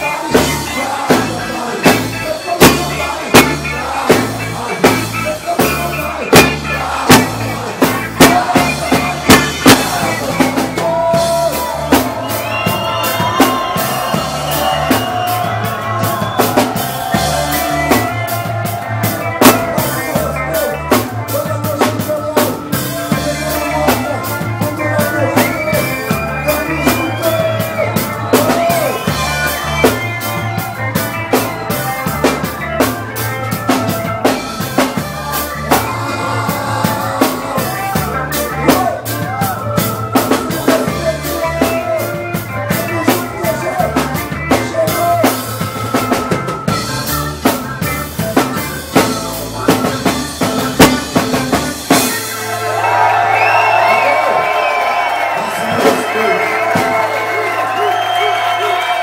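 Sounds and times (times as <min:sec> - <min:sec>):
person singing lead vocal: 0:00.0 - 0:30.6, 0:34.2 - 0:46.3
live reggae band playing: 0:00.0 - 0:59.0.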